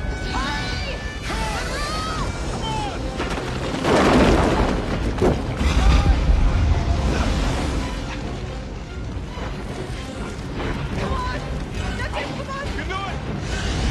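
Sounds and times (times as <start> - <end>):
volcanic blast: 1.6 - 8.0
deep rumbling with booms: 2.3 - 8.0.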